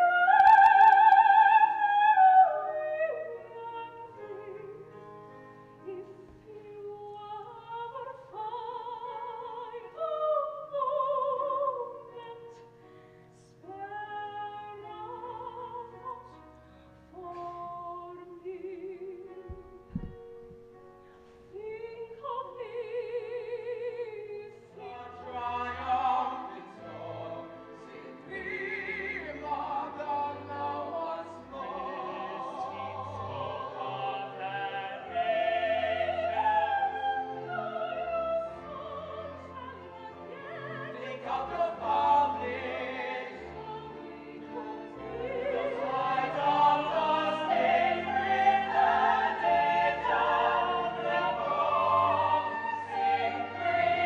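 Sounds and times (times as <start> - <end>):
operatic ensemble singing: 0.0 - 5.0, 6.0 - 12.6, 21.6 - 54.0.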